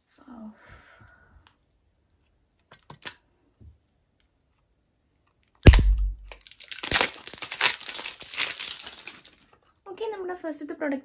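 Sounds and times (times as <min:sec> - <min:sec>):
loud thump: 0:05.7 - 0:06.4
plastic packaging crinkling: 0:05.7 - 0:09.6.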